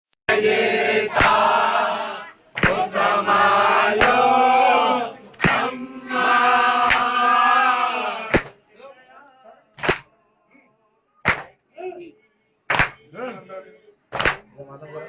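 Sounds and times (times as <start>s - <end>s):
men chanting a lament: 0.3s - 13.8s
unison chest-beating strikes: 1.1s - 1.4s, 5.4s - 5.7s, 8.3s - 8.6s, 9.8s - 10.1s, 12.7s - 13.0s.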